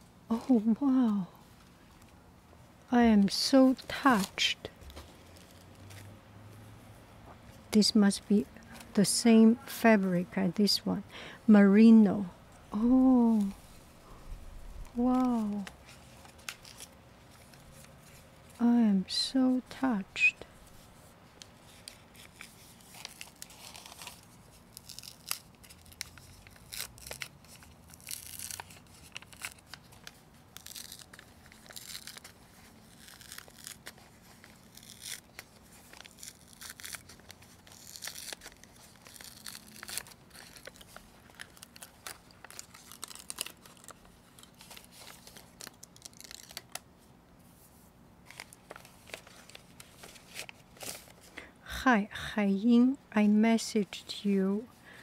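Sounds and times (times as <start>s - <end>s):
envelope tearing: 14.6s - 18.2s, 21.6s - 46.9s, 48.2s - 51.3s
paper rustling: 14.8s - 18.6s, 20.5s - 46.8s, 47.5s - 51.3s.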